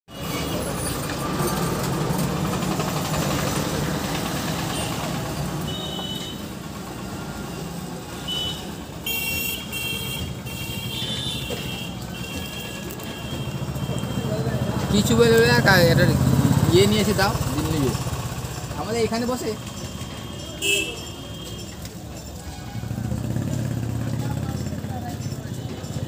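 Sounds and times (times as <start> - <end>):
traffic: 0.1 - 26.0
vehicle engine running: 0.2 - 5.6, 12.3 - 20.3.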